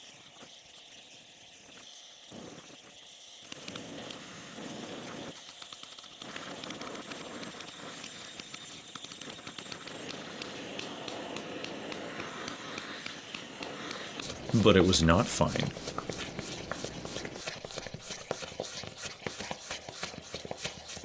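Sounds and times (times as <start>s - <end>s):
torch flame hissing: 0.0s - 21.0s
small crackles and pops: 1.6s - 14.6s.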